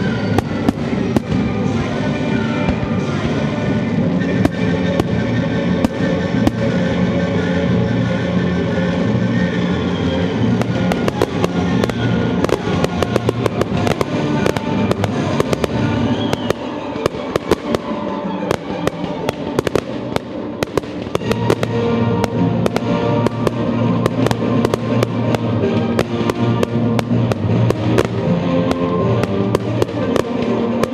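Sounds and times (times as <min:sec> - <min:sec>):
music with sustained notes: 0:00.0 - 0:30.9
firework shells bursting: 0:10.5 - 0:30.9.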